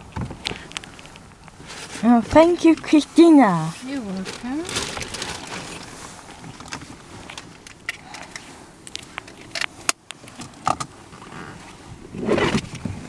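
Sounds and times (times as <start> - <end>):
low steady rumble: 0.0 - 13.0.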